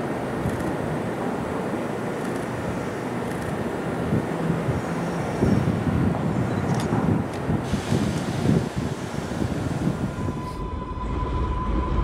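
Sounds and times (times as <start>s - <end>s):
subway train on elevated track: 0.0s - 12.0s.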